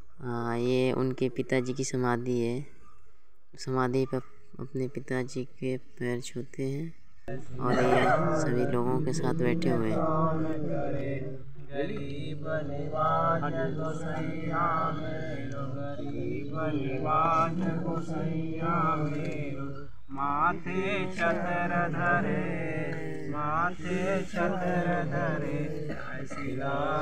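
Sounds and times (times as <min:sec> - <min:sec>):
hymn chanted in recitation: 0:07.3 - 0:27.0.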